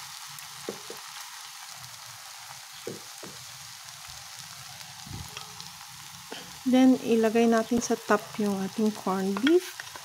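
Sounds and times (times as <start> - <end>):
omelette sizzling in oil: 0.0 - 10.0
soft knocks: 2.8 - 3.4.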